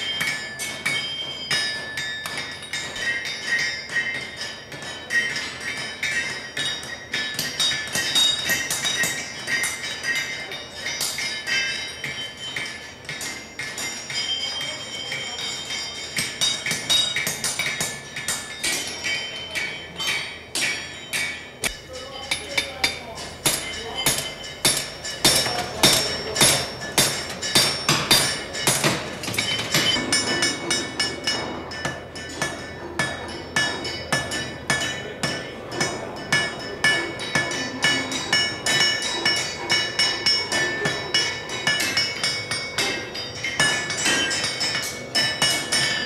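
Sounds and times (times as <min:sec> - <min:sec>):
hammer striking metal on anvil: 0:00.0 - 0:46.0.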